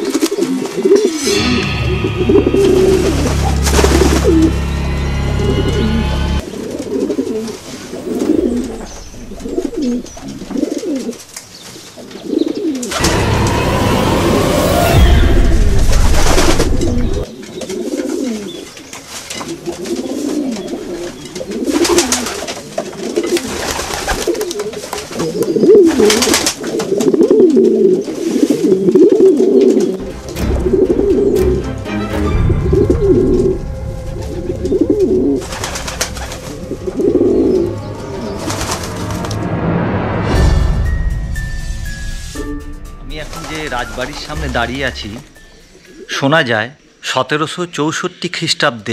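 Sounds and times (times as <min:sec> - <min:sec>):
pigeons cooing: 0:00.0 - 0:01.2, 0:05.4 - 0:13.0, 0:16.3 - 0:30.0, 0:32.5 - 0:39.0, 0:45.4 - 0:46.2.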